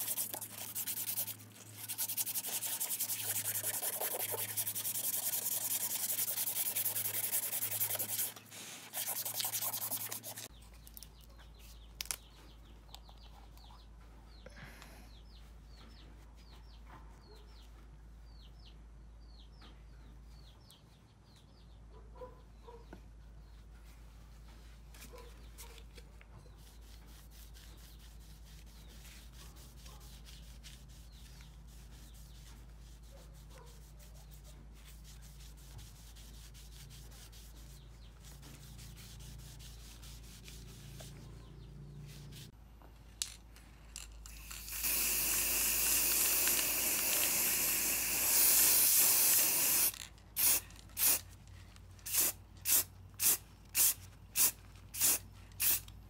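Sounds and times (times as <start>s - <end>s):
aerosol spray can hissing: 0.0s - 8.3s, 44.3s - 51.2s, 52.1s - 55.8s
cloth rubbing on wood: 0.0s - 10.5s.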